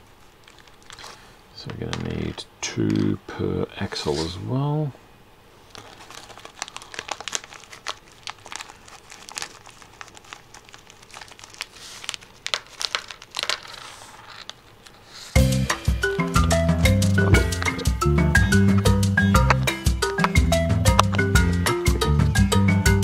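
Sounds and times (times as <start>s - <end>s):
plastic bag crinkling: 0.0s - 3.2s, 5.6s - 15.4s
music: 15.4s - 23.0s.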